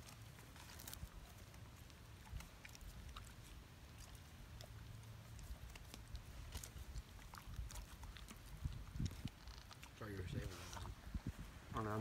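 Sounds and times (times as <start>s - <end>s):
dog chewing with small crunches: 0.0s - 12.0s.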